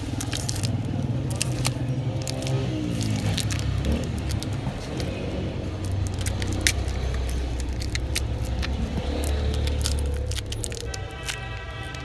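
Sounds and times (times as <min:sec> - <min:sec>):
steady low rumble: 0:00.0 - 0:12.0
metal parts clicking and tapping: 0:05.8 - 0:12.0.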